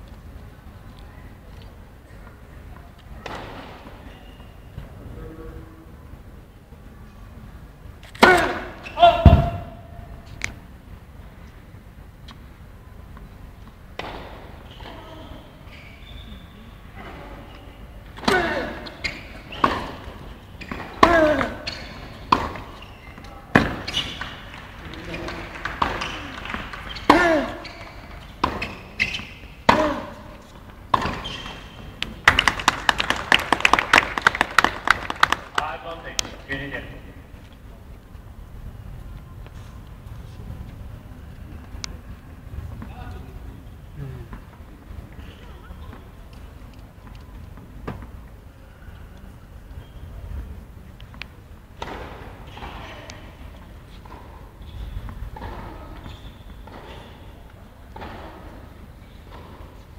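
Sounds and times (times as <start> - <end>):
low rumble of hall: 0.0 - 28.2, 29.6 - 59.9
tennis ball bouncing on hard court: 19.1 - 22.9, 23.5 - 24.4, 30.9 - 31.8, 55.3 - 57.0
crowd applause: 24.2 - 27.6, 32.2 - 35.8.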